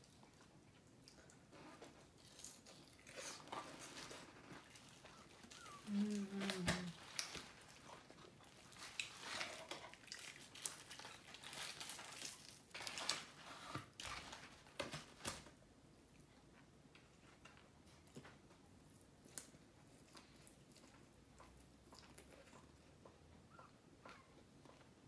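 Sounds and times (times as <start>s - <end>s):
crispy chicken skin crackling: 4.4s - 13.4s
paper liner crinkling: 8.5s - 15.5s.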